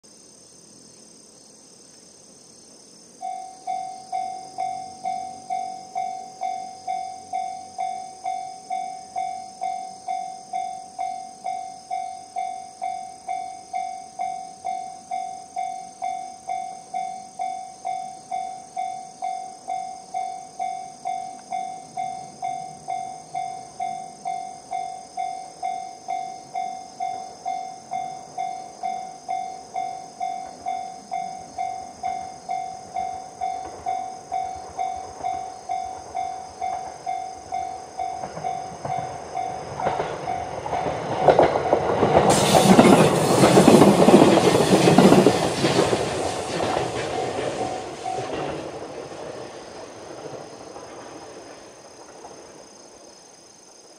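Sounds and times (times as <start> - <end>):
level crossing alarm ringing: 3.2 - 41.4, 47.6 - 48.6
train wheels clattering over rails: 26.4 - 53.0.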